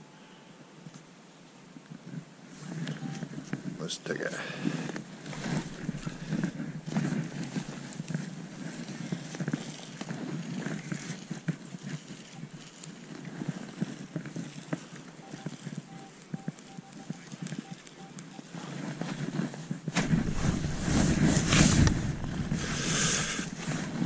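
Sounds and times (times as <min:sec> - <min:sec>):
metal detector beeping: 0:02.9 - 0:03.4, 0:12.0 - 0:13.0, 0:15.1 - 0:18.8
spade digging into turf: 0:19.9 - 0:24.0.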